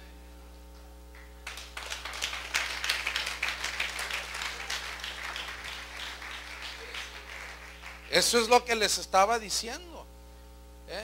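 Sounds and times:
steady electrical hum: 0:00.0 - 0:11.0
congregation applauding: 0:01.4 - 0:08.8.

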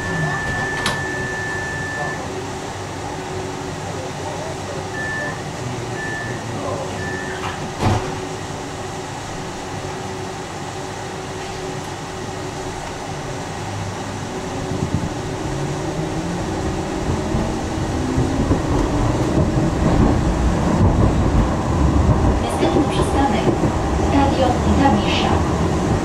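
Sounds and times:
short warning beep: 0:00.0 - 0:02.3, 0:05.0 - 0:05.4, 0:06.0 - 0:06.4, 0:07.0 - 0:07.5.

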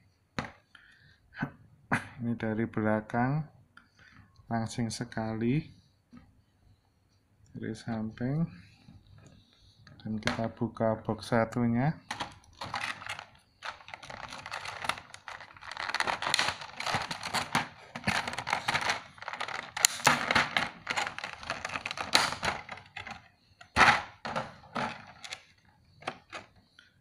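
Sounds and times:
plastic blister trays crinkling: 0:12.1 - 0:26.6.

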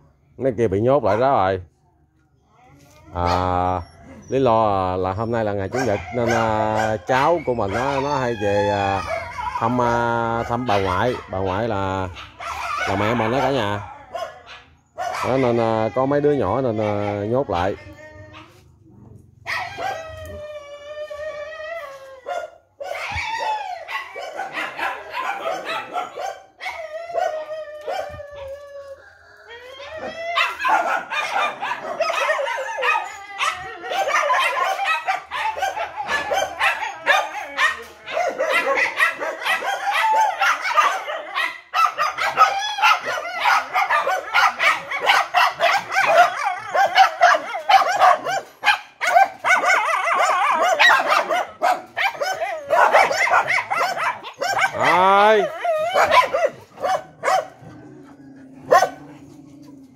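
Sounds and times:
dogs barking and yelping: 0:00.9 - 0:01.7, 0:03.1 - 0:59.9.

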